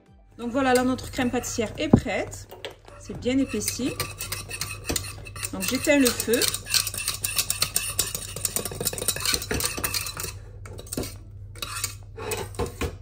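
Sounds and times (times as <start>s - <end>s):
utensil scraping a saucepan: 0.4s - 13.0s
utensil knocking on pan: 0.5s - 10.1s.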